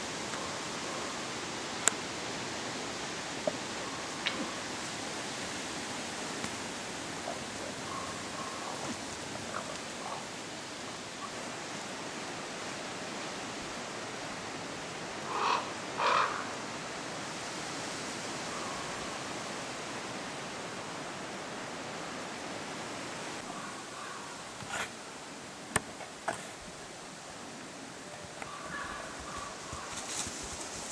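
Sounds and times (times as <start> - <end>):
forest hiss: 0.0 - 30.9
crow cawing: 15.3 - 16.6, 23.5 - 24.3, 28.5 - 29.9.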